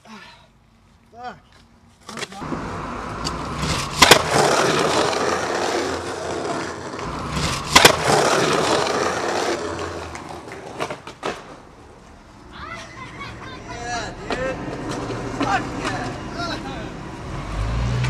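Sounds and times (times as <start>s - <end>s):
skateboard wheels rolling on asphalt: 0.8s - 18.0s
skateboard clacking on ground: 2.0s - 11.7s, 14.2s - 16.6s.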